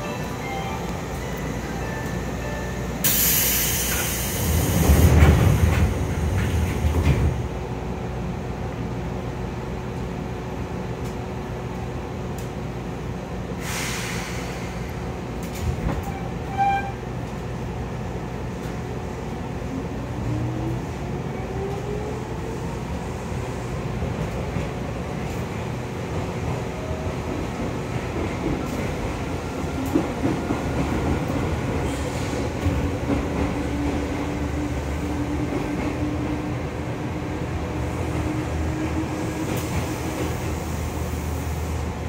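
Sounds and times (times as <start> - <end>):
train running rumble: 0.0 - 42.0
air hiss: 3.0 - 5.1, 13.6 - 14.9.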